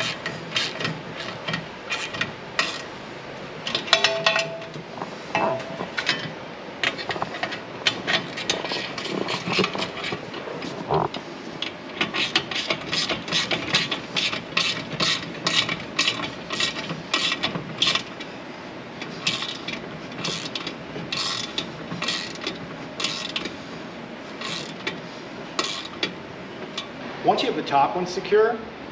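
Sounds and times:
hand ratchet clicking: 0.0s - 2.9s, 11.6s - 18.2s, 19.1s - 23.6s, 24.4s - 25.0s, 25.6s - 26.9s.

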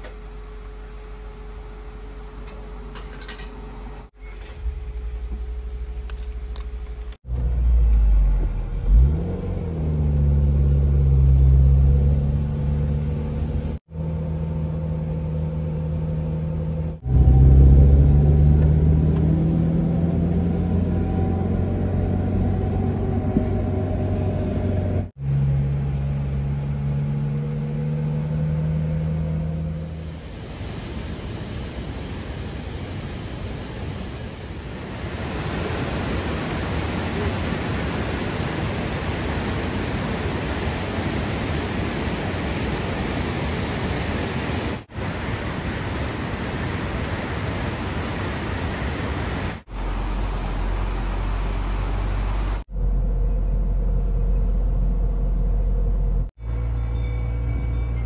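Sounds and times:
car engine accelerating: 6.9s - 30.2s
stream rushing over rocks: 34.7s - 52.6s.

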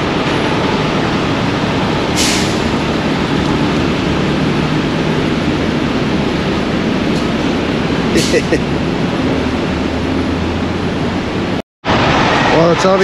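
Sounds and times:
diesel engine running: 0.0s - 13.0s
air hiss: 2.2s - 2.7s.

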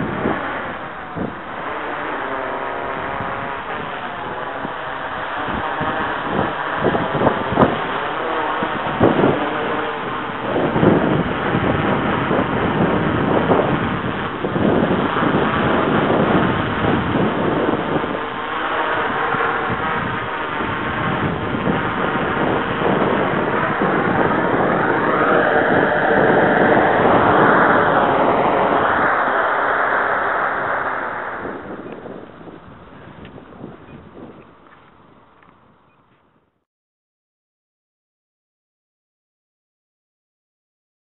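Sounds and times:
quadcopter motors buzzing: 0.0s - 36.0s
wind buffeting microphone: 0.0s - 36.0s.

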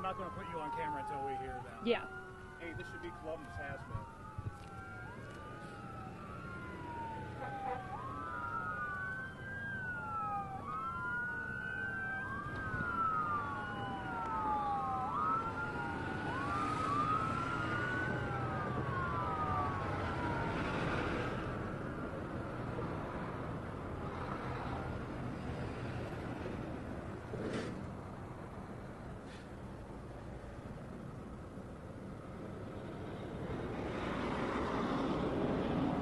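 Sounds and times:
emergency sirens wailing: 0.0s - 27.2s.

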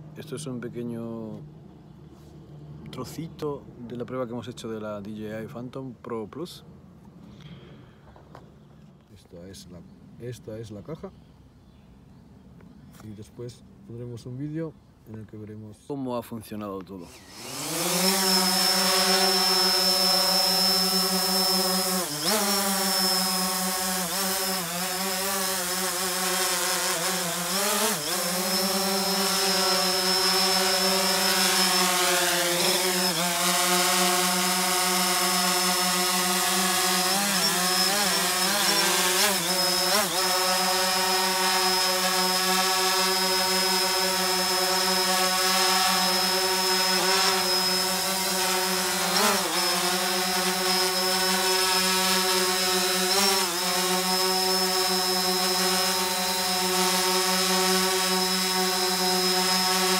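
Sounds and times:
quadcopter propellers buzzing: 17.0s - 59.9s.

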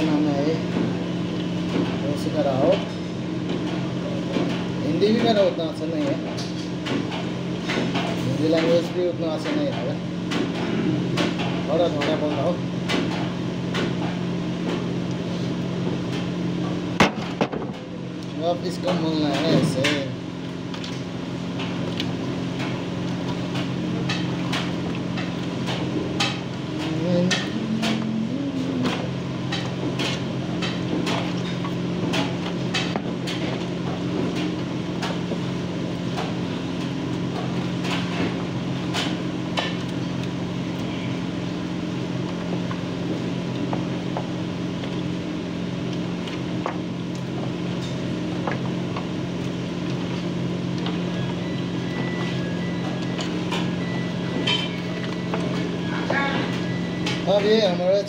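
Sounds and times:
low hum: 24.0s - 31.0s.

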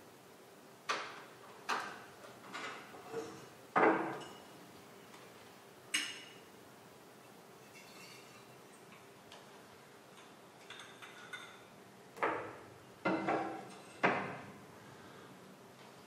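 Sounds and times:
glassware clinking and knocking: 2.6s - 4.5s, 6.0s - 6.4s, 7.6s - 9.0s, 10.6s - 11.7s, 12.3s - 14.4s.

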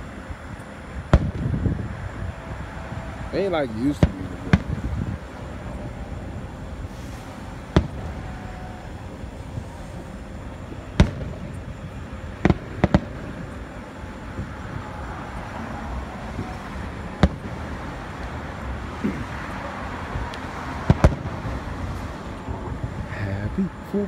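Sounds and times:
firework shells booming: 1.0s - 2.0s, 3.8s - 14.8s, 16.3s - 22.0s.

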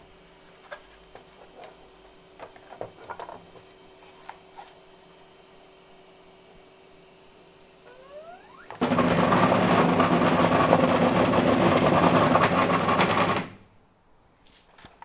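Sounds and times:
feeder motor whirring: 7.9s - 13.4s.

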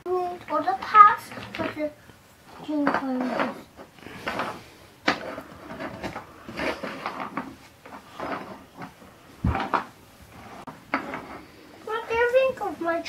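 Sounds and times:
wooden blocks clacking: 2.8s - 10.0s, 10.6s - 12.2s
blocks knocking on wooden floor: 2.8s - 12.3s.

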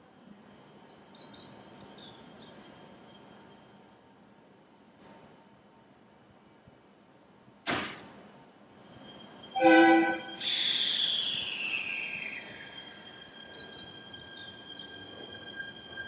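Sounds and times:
rail running noise: 0.0s - 16.0s
train horn blast: 9.6s - 10.3s
train brake hiss: 9.6s - 13.1s.

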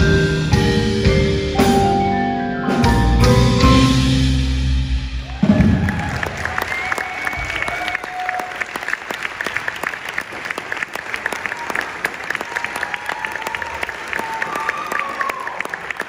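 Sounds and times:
audience applauding: 5.2s - 16.0s.

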